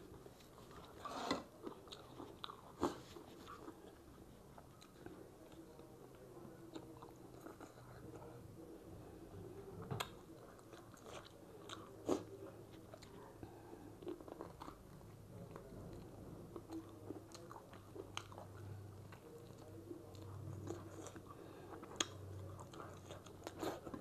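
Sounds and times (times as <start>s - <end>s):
person chewing chicken: 16.5s - 24.0s.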